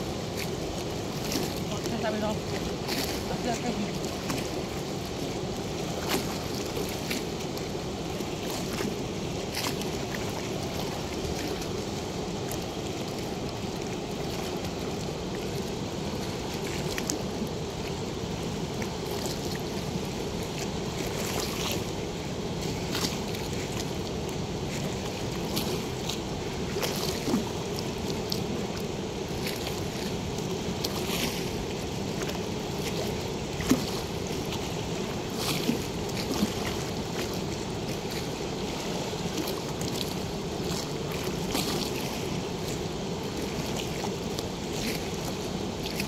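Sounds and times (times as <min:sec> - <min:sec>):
water rushing through floodgate: 0:00.0 - 0:46.0.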